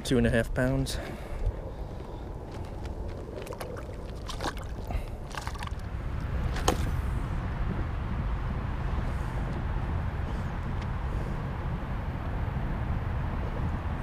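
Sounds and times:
steady low rumble: 0.0s - 14.0s
fishing gear clicks and knocks: 2.5s - 5.9s, 6.5s - 6.9s
water sloshing and splashing: 2.6s - 7.1s.

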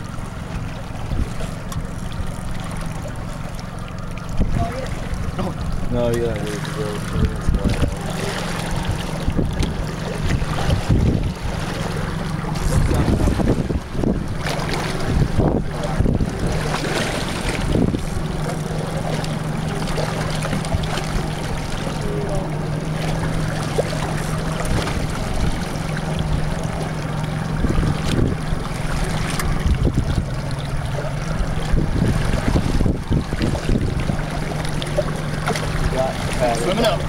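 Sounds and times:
boat engine humming: 0.0s - 37.0s
sea: 0.0s - 37.0s
wind noise on microphone: 7.4s - 11.8s, 12.5s - 18.3s, 27.5s - 34.4s.

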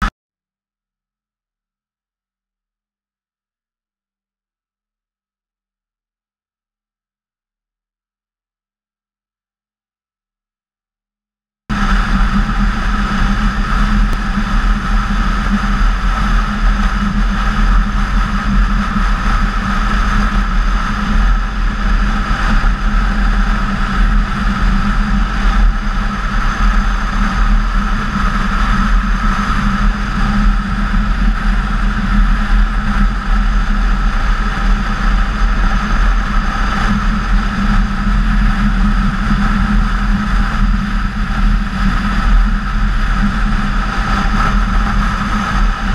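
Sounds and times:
wind noise: 11.7s - 45.9s.

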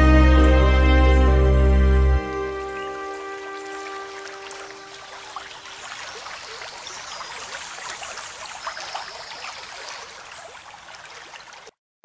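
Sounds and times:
rain falling on water: 2.7s - 11.8s.

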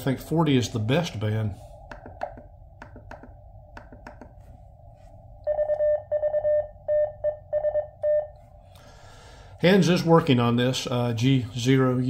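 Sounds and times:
morse code sidetone: 5.5s - 8.4s.

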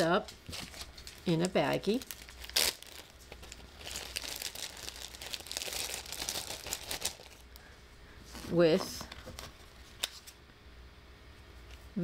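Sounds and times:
plastic bag crinkling: 0.0s - 7.7s.

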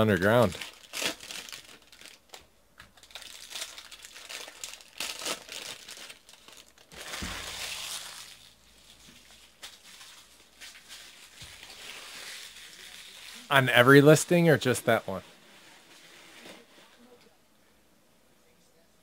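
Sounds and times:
foil wrapper crinkling and tearing: 0.0s - 14.2s.

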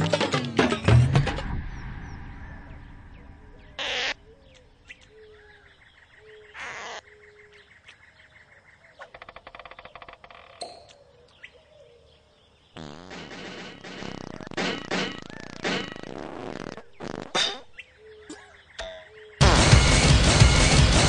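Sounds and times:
short chirping calls: 1.6s - 11.7s.

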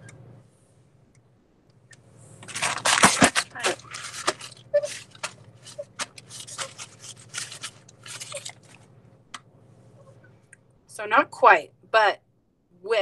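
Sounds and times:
paper towel rustling and crinkling: 2.4s - 8.9s.

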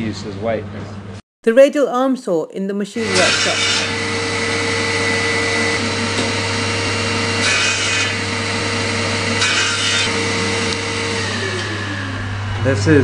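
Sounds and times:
saw blade cutting wood: 3.0s - 12.0s
saw motor whine: 3.0s - 13.0s.

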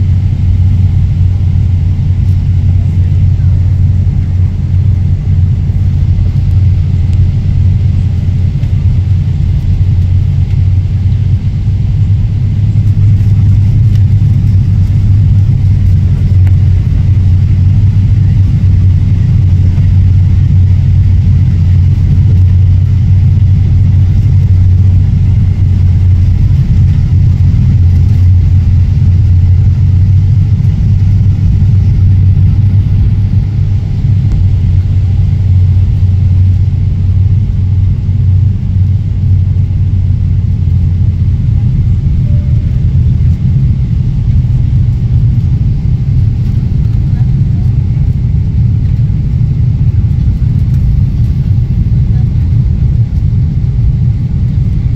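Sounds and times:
airplane cabin engine rumble: 0.0s - 54.9s.

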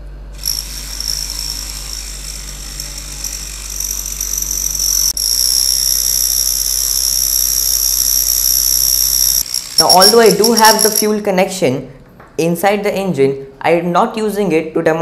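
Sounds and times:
small motor whining: 0.4s - 11.2s.

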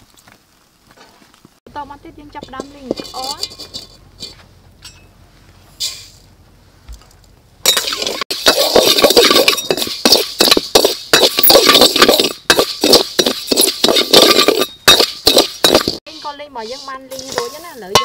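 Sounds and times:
metal spatula scraping wok: 2.4s - 4.4s, 7.7s - 18.0s.

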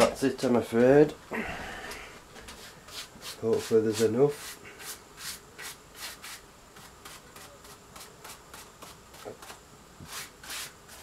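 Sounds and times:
paintbrush strokes on wood: 2.5s - 9.5s.

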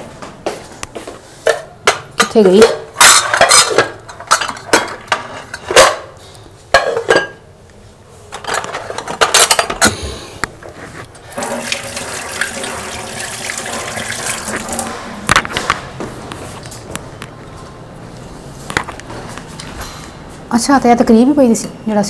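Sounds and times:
running water: 11.3s - 15.3s.

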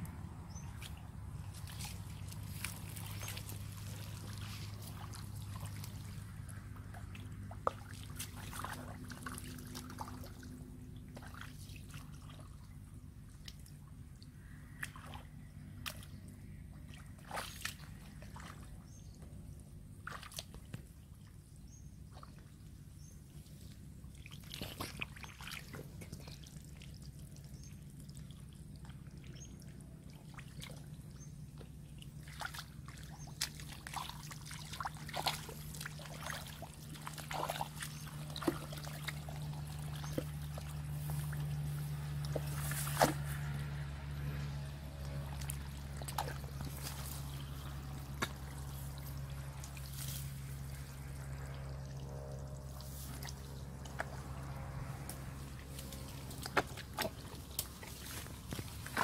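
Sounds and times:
mud squelching: 0.0s - 21.4s, 22.0s - 59.0s
low steady hum: 0.0s - 59.0s
water splashing and dripping: 0.7s - 12.7s, 24.1s - 59.0s.

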